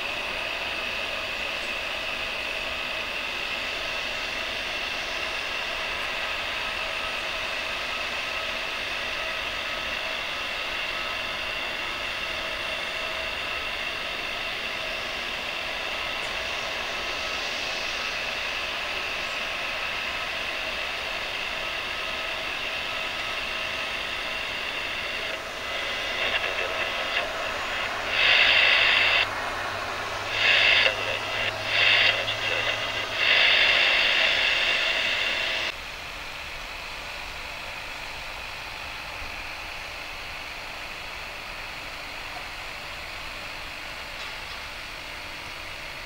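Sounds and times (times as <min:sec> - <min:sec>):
aircraft turbine whine: 0:00.0 - 0:46.0
crackly radio bursts: 0:01.2 - 0:35.7.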